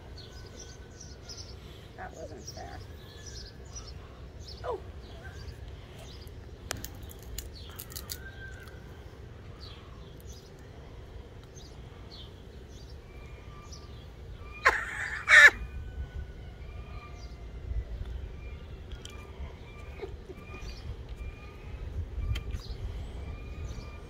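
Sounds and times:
small birds chirping: 0:00.0 - 0:15.8, 0:16.6 - 0:24.0
loud harsh bird calls: 0:11.6 - 0:17.5.

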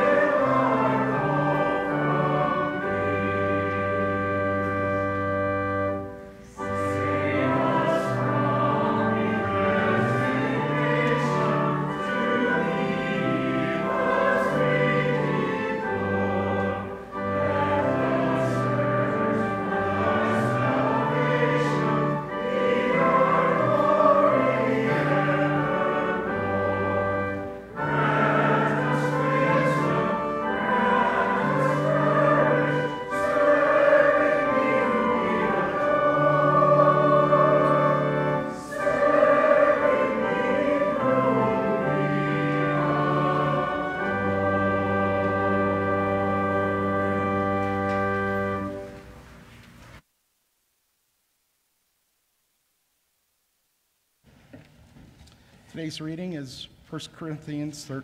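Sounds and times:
congregation singing a hymn: 0:00.0 - 0:49.0
pipe organ chords: 0:00.0 - 0:49.4.

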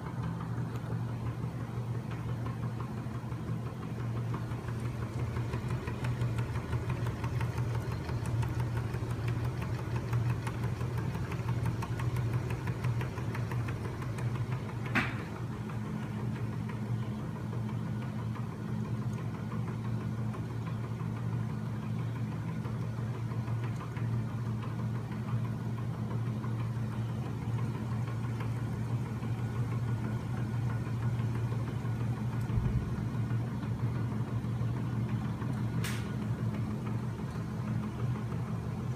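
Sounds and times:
sharp click: 0:35.8 - 0:36.2.

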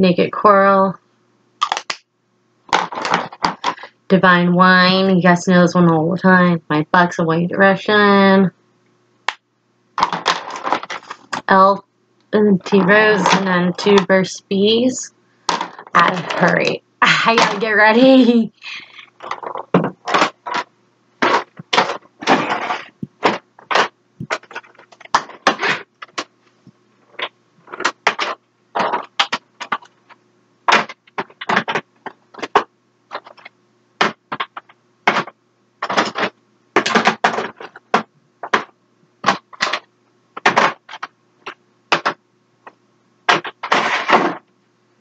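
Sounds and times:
plastic containers clacking together: 0:02.7 - 0:03.9, 0:10.0 - 0:11.5, 0:15.5 - 0:16.6, 0:19.0 - 0:26.3, 0:27.1 - 0:42.2
rattling scrapes: 0:19.0 - 0:26.2.

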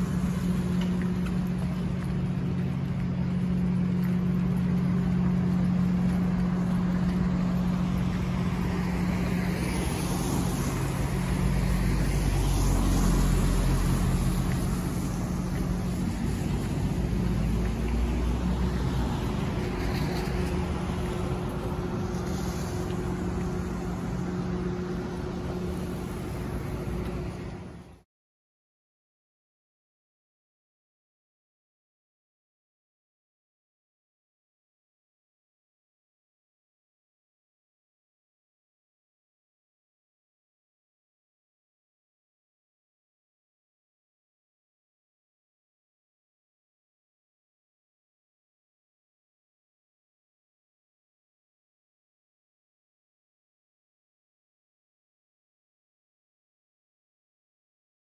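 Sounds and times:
cars driving past on wet road: 0:00.0 - 0:28.0
steady low hum: 0:00.0 - 0:28.0.

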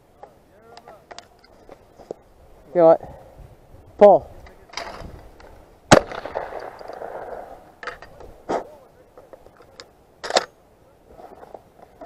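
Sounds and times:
shotgun blast echo: 0:05.9 - 0:07.5.

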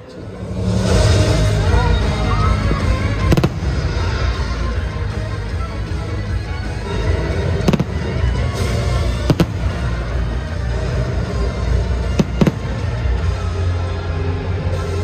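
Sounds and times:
loud show music: 0:00.0 - 0:15.0
fireworks bangs: 0:02.8 - 0:04.3, 0:07.5 - 0:10.2, 0:11.9 - 0:13.2.

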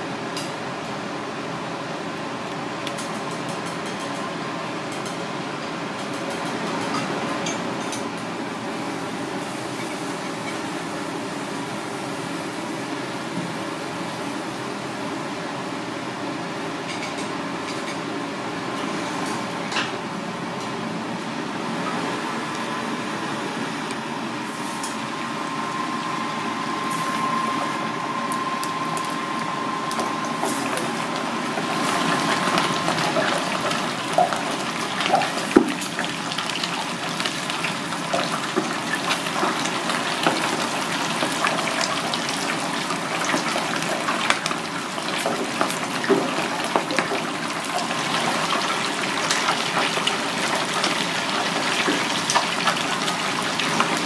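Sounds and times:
fish deep-frying in oil: 0:24.4 - 0:54.0.

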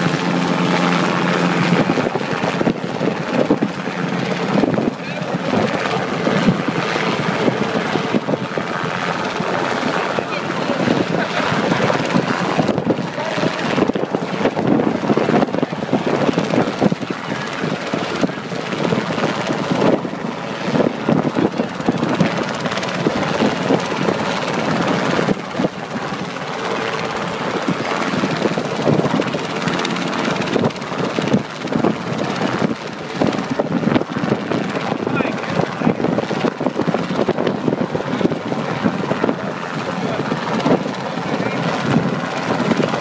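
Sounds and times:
helicopter engine noise: 0:00.0 - 0:43.0
helicopter rotor chop: 0:00.0 - 0:43.0.

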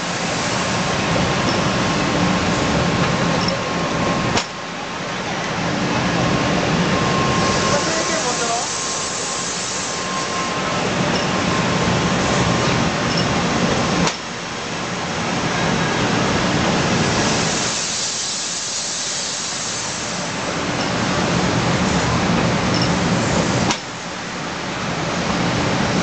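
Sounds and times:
sharp click: 0:14.0 - 0:14.2.

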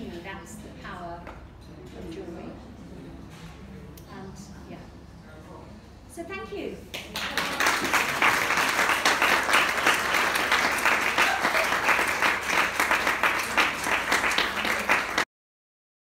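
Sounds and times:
audience applauding: 0:07.0 - 0:15.3.

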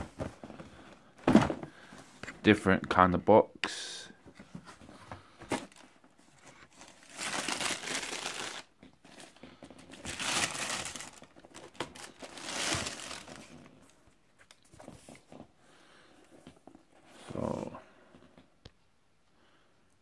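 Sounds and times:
tissue paper crinkling: 0:05.6 - 0:13.6.

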